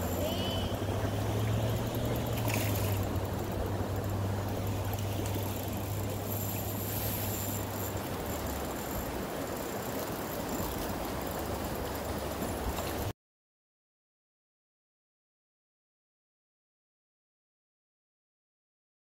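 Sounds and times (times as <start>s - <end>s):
low hum: 0.0s - 13.0s
stream water flowing: 0.0s - 13.1s.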